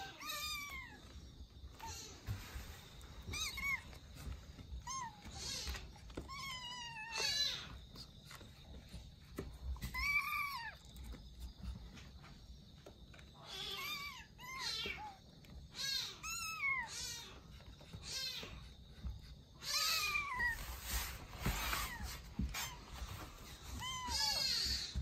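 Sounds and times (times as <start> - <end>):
kittens meowing: 0.0 - 2.4, 3.2 - 7.8, 9.8 - 11.1, 13.3 - 18.7, 19.6 - 20.8, 23.4 - 25.0.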